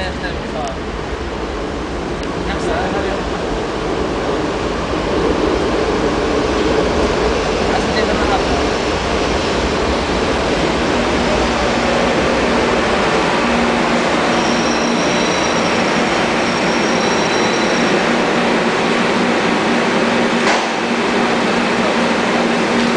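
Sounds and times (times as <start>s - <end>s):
train rumbling into platform: 0.0s - 22.9s
high squeal of wheels: 14.3s - 17.9s.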